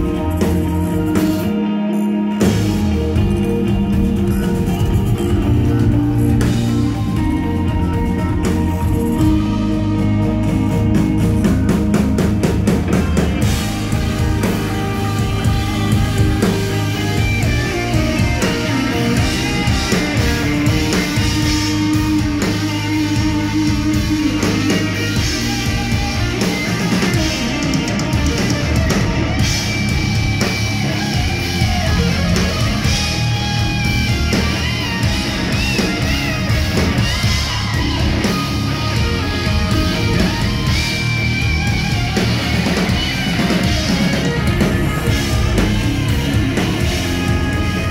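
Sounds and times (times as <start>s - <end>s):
bass guitar: 0.0s - 47.9s
drums: 0.0s - 47.9s
electric guitars: 0.0s - 47.9s.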